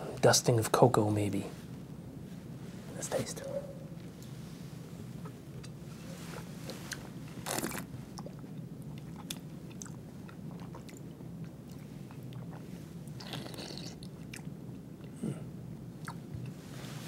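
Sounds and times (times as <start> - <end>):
person slurping wine: 13.2 - 14.0
wet mouth clicks: 13.2 - 14.5.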